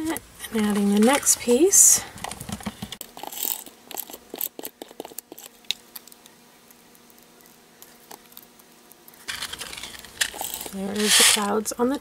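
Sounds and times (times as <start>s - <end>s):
paper rustling: 9.3s - 11.5s.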